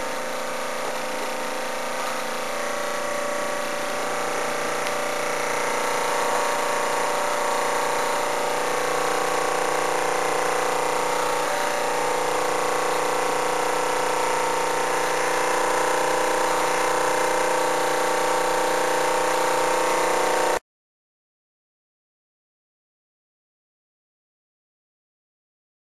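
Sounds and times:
steam hissing: 0.0 - 20.6
toy steam engine whirring: 3.4 - 20.6.

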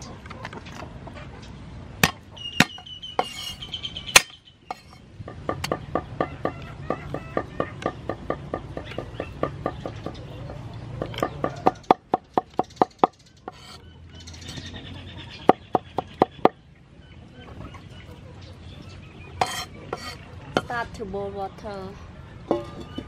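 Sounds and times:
cleaver chopping on wooden board: 2.0 - 3.5.

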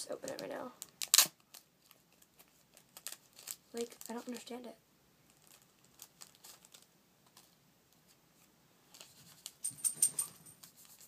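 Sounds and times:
plastic packet crinkling and tearing: 0.1 - 4.6, 5.3 - 6.9.

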